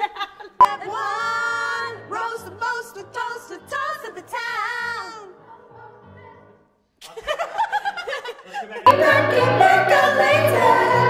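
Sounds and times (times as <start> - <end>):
female vocal trio singing: 0.6 - 6.6, 8.9 - 11.0.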